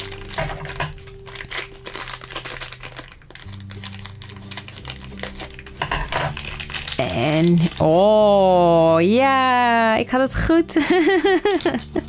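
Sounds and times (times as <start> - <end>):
scissors cutting plastic: 0.0 - 9.2
plastic wrapper crackling: 0.0 - 10.4
soft background music: 0.0 - 12.0.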